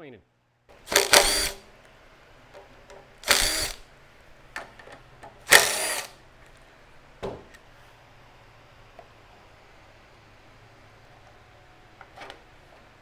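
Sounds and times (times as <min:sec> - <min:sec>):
cordless driver spinning: 0:00.9 - 0:01.6, 0:03.2 - 0:03.8, 0:05.5 - 0:06.2.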